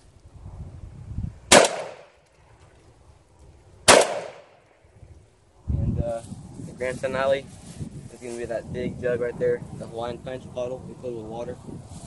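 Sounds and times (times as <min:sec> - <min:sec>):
shotgun shots: 0:01.5 - 0:02.2, 0:03.9 - 0:04.6.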